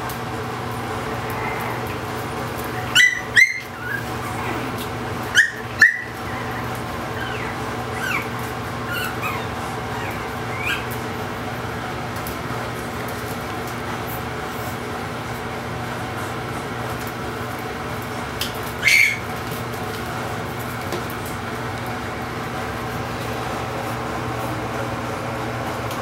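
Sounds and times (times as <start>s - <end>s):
puppies yelping: 0.9s - 11.4s, 18.6s - 19.6s
puppies squeaking and whining: 1.2s - 11.2s, 18.6s - 19.6s.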